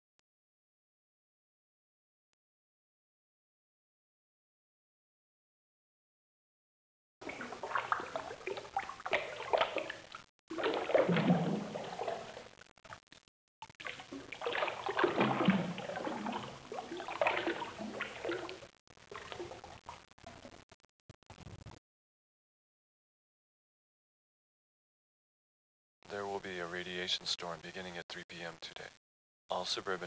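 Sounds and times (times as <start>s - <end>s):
water sloshing and gurgling: 7.2s - 13.1s, 13.7s - 20.1s.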